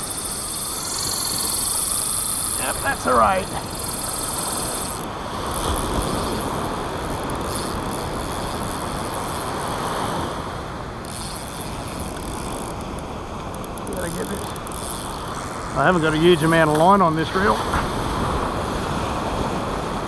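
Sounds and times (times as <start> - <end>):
wind on microphone: 1.2 - 10.6, 13.9 - 20.0
surf rushing on beach: 4.5 - 7.8, 9.4 - 11.1, 15.6 - 20.0.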